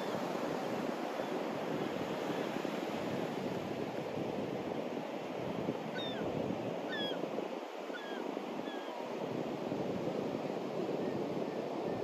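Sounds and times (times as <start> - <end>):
waves breaking on beach: 0.0 - 12.0.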